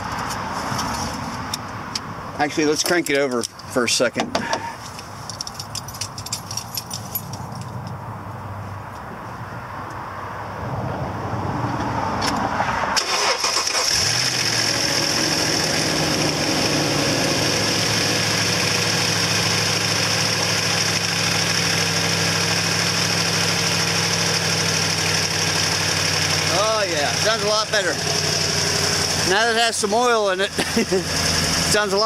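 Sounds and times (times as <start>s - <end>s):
engine cranking and idling: 13.0s - 32.0s.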